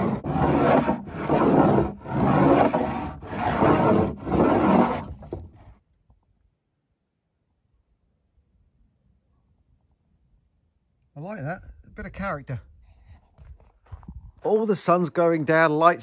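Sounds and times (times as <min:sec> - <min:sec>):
hand scraper scraping wood plank: 0:00.0 - 0:05.7.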